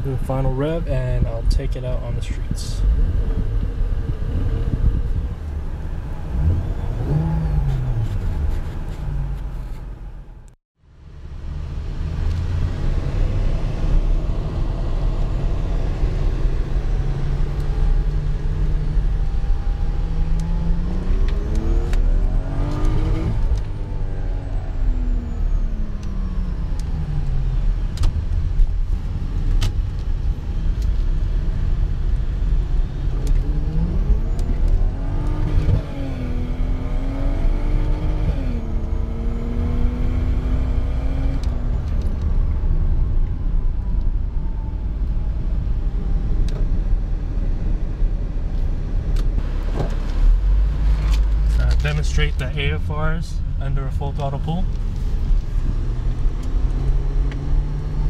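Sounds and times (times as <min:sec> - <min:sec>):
car engine accelerating: 0:00.0 - 0:10.5, 0:11.1 - 0:58.0
road rumble: 0:00.0 - 0:58.0
transmission upshifts: 0:12.3 - 0:28.6, 0:32.1 - 0:47.8.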